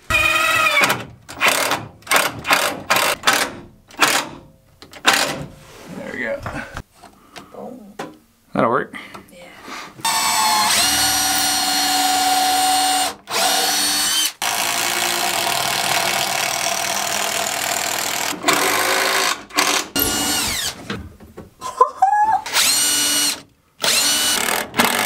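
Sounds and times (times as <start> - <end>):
cordless drill boring into wood: 0.1 - 1.7, 10.1 - 20.8, 22.5 - 25.0.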